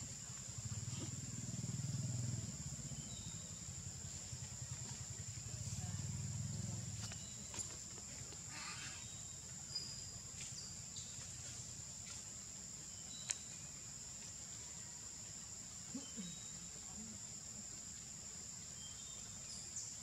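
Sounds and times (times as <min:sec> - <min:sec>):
faint chirps: 0:00.0 - 0:12.2, 0:12.8 - 0:15.0, 0:15.8 - 0:17.2
insects droning: 0:00.0 - 0:20.0.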